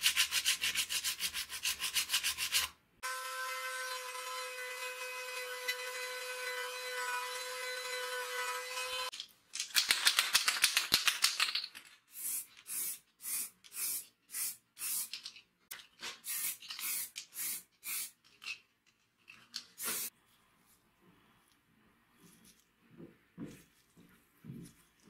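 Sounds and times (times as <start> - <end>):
spray can rattling: 9.6 - 15.4, 16.0 - 18.6, 19.6 - 20.1
spray paint hissing: 12.1 - 15.2, 16.2 - 18.2, 19.8 - 20.1.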